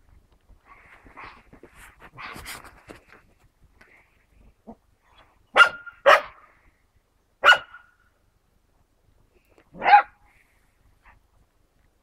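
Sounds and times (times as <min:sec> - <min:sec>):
puppy barking: 0:05.5 - 0:06.4, 0:07.4 - 0:07.9, 0:09.8 - 0:10.2.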